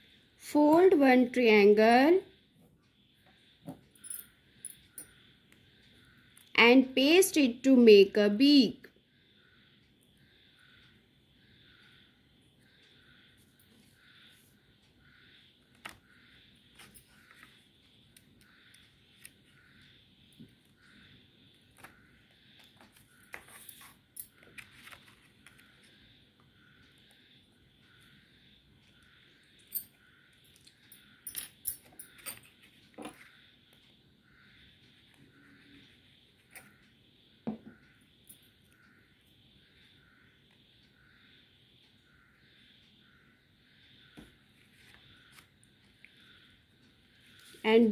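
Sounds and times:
paper crinkling and tapping: 22.6 - 25.6.

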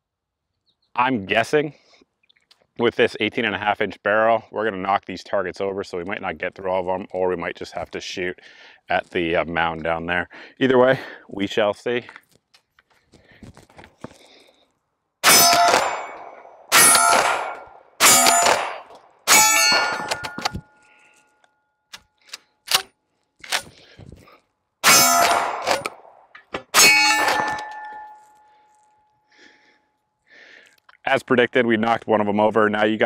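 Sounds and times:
shotgun shots: 15.2 - 20.5, 24.8 - 26.1, 26.7 - 27.8.

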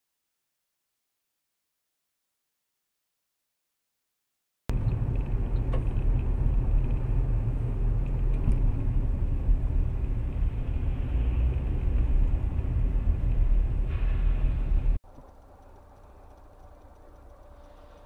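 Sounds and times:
car engine rumble: 4.7 - 18.0
road noise: 4.7 - 18.0.

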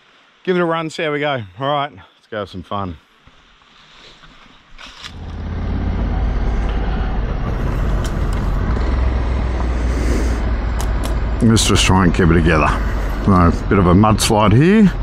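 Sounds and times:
wind noise: 5.0 - 14.2
motorcycle engine: 5.0 - 15.0.

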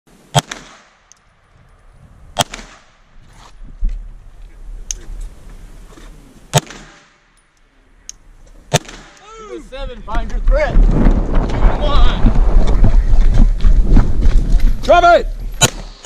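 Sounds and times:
handgun shots: 0.3 - 1.0, 6.5 - 7.1, 8.7 - 9.2, 15.6 - 16.0.

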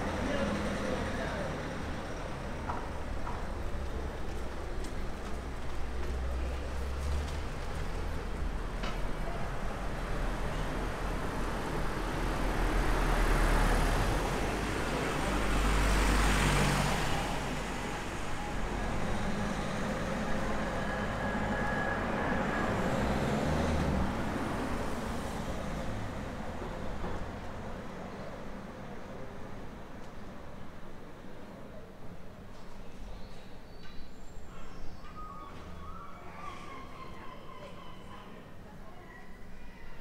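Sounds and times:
motor vehicles passing: 0.0 - 27.9.

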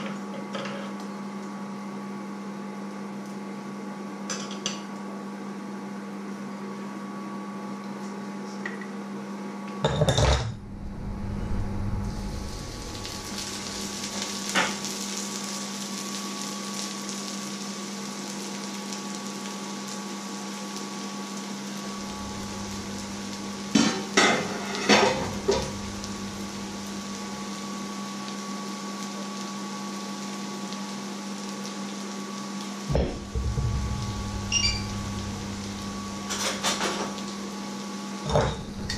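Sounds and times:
onions sizzling in a frying pan: 0.0 - 7.2, 11.0 - 38.9
steady low hum: 10.2 - 14.7, 21.8 - 27.7, 32.9 - 37.6, 38.2 - 38.9
pots and utensils clanking: 23.7 - 25.9, 32.9 - 37.2, 38.2 - 38.9.

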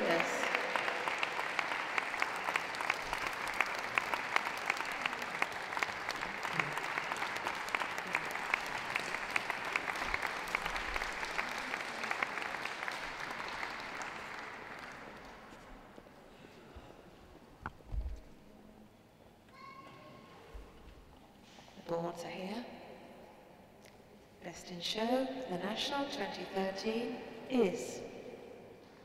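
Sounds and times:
audience applauding: 0.0 - 16.1.

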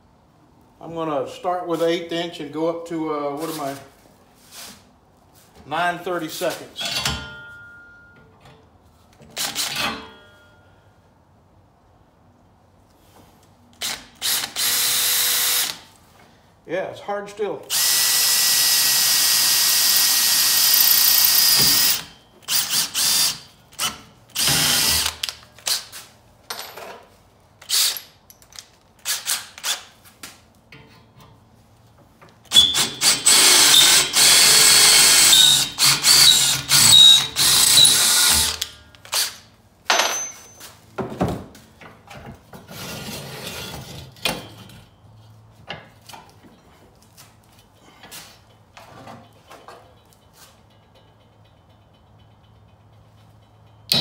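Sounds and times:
cordless drill boring through steel: 14.2 - 15.8, 17.7 - 25.2, 32.5 - 39.4.

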